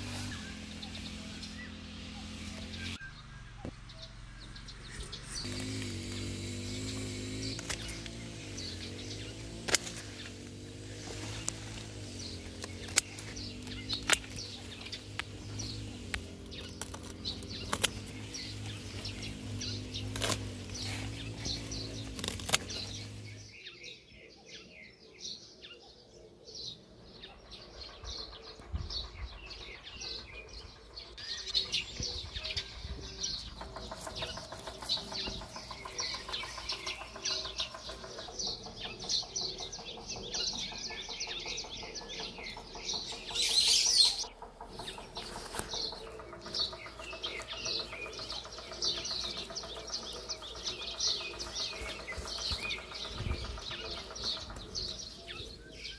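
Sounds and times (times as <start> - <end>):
birds chirping: 0.0 - 55.9
pruning shears snipping: 5.4 - 23.4, 43.0 - 55.0.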